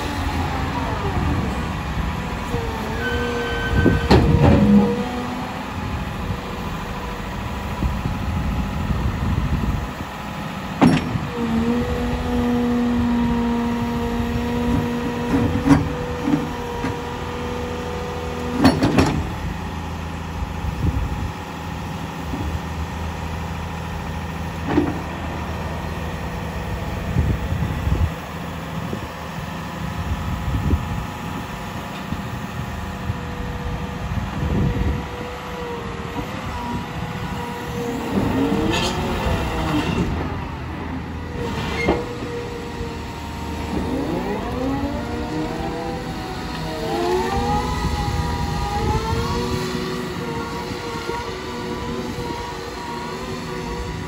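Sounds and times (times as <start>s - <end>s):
excavator diesel engine: 0.0s - 54.0s
hydraulic pump whine: 0.0s - 54.0s.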